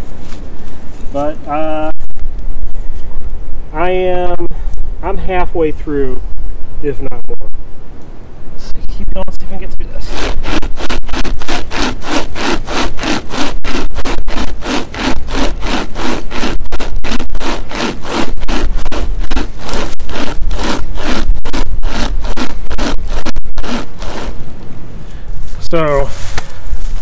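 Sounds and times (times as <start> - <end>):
chain saw rasping through log: 10.0 - 24.5.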